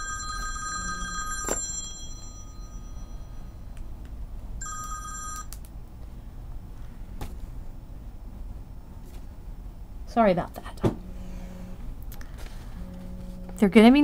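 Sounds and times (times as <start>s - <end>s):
telephone ringing: 0.0s - 3.7s, 4.6s - 5.6s.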